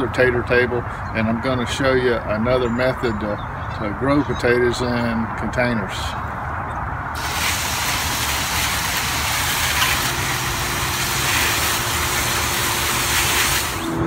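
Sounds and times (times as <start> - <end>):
hose spray hissing: 7.2 - 14.0.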